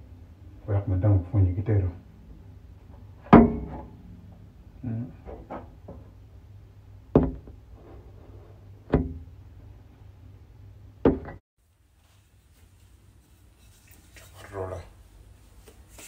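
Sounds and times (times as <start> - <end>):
steady low hum: 0.0 - 16.0
sharp ringing knocks: 3.2 - 4.0.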